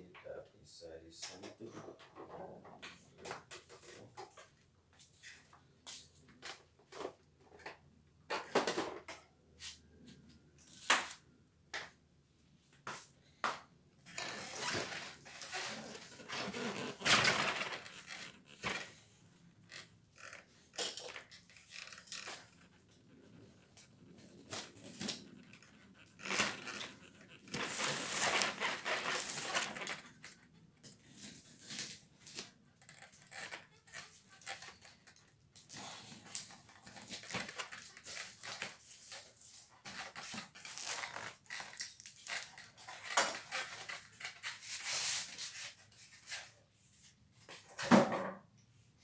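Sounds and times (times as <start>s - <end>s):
cardboard flaps scraping and crinkling: 14.1s - 19.2s, 21.6s - 30.4s.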